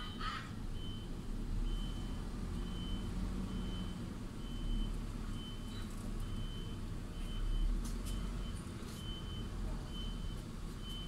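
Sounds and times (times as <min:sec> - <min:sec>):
truck reversing alarm beeping: 0:00.0 - 0:11.0.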